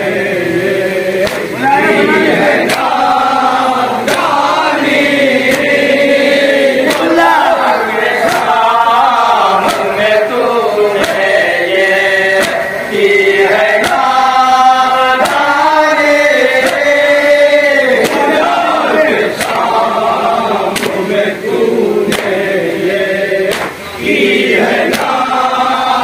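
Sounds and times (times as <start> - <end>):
men chanting in chorus: 0.0 - 26.0
sharp chest-beating slaps: 1.2 - 1.6, 2.5 - 3.1, 4.0 - 8.7, 9.6 - 10.3, 11.0 - 11.4, 12.3 - 14.3, 15.2 - 15.6, 16.5 - 17.1, 18.0 - 19.8, 20.7 - 21.1, 22.1 - 22.5, 23.4 - 23.9, 24.8 - 25.2.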